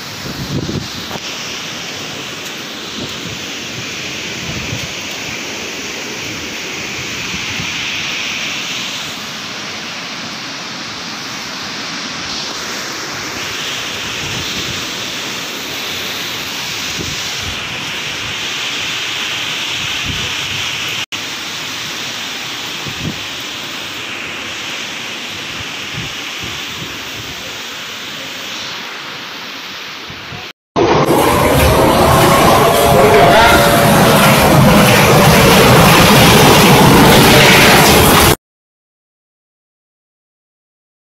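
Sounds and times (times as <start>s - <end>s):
wind and rain rushing: 0.0s - 38.4s
wind buffeting microphone: 0.1s - 1.3s, 2.9s - 5.4s, 30.1s - 38.4s.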